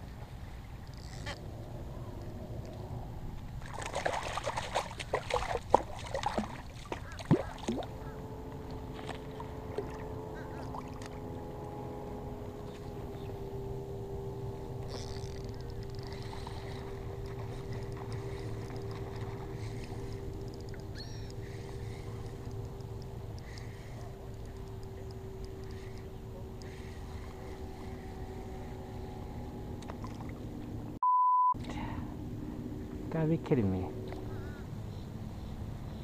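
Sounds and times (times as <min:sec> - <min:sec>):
steady hum: 0:00.0 - 0:31.0, 0:31.6 - 0:36.0
wind: 0:00.0 - 0:36.0
water washing: 0:03.6 - 0:07.9.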